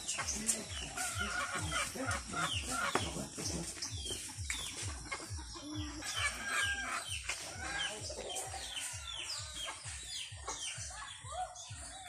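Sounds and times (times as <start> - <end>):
low even thumping beat: 0.0 - 6.0
chickens clucking and peeping: 0.0 - 12.0.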